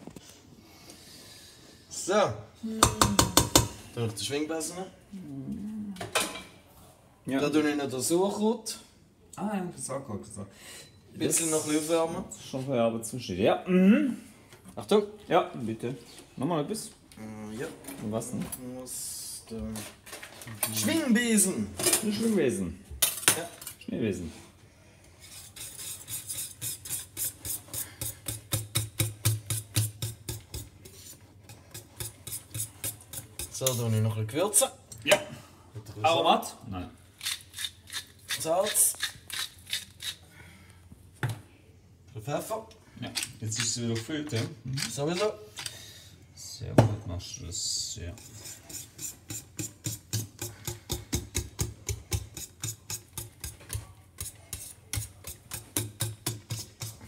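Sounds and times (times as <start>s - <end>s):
whisk clattering against pot: 48.2s - 57.0s.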